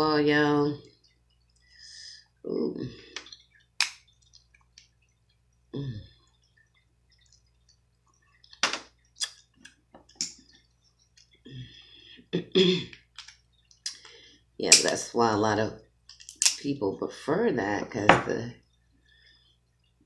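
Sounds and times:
wet mouth sounds: 3.0 - 11.8
crab shell cracking: 16.1 - 16.6.

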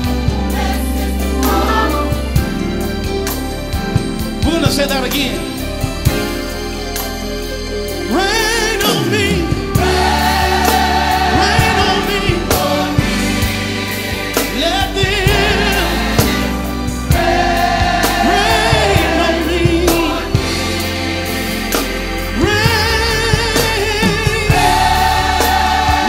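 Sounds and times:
choir singing held phrases: 0.0 - 2.8, 8.8 - 26.0
band with steady bass: 0.0 - 26.0.

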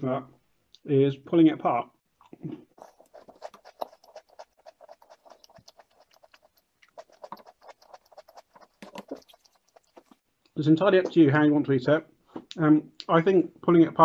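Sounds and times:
chewing crunchy biscuit: 2.8 - 10.2.

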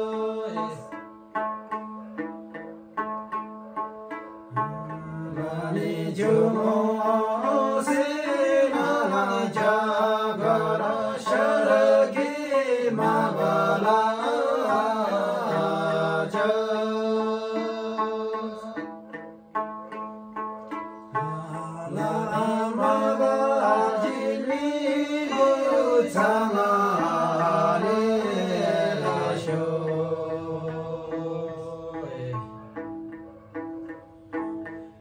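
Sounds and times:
men singing folk song: 0.0 - 1.0, 4.6 - 19.0, 21.2 - 32.7
plucked lute: 0.0 - 35.0.

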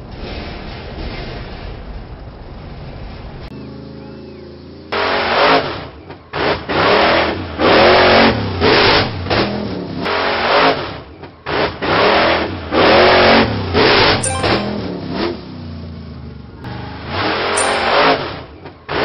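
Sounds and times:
cartoon truck engine revving: 3.5 - 19.0.

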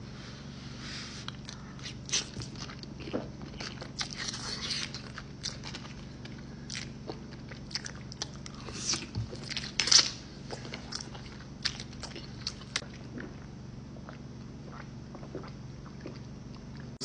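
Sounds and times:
man chewing food: 1.2 - 17.0.

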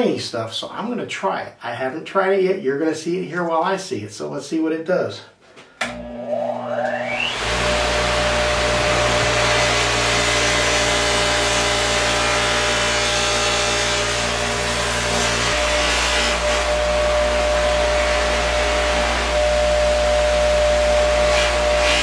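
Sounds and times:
buffer motor hum: 5.9 - 13.0, 14.1 - 22.0
sandpaper scraping buffing wheel: 21.1 - 22.0.

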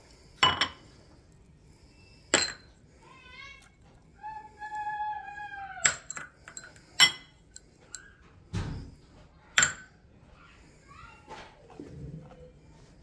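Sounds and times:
bowl clinking against saucepan: 5.8 - 7.3.

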